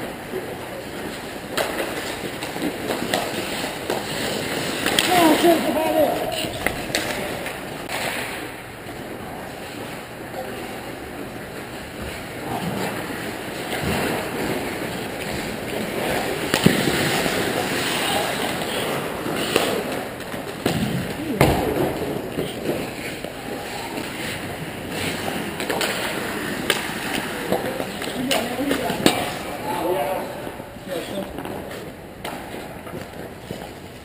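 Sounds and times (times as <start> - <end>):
hockey sticks and puck cracking: 0.0 - 10.0, 11.2 - 29.9, 31.0 - 34.0
skate blades scraping on ice: 0.8 - 8.3.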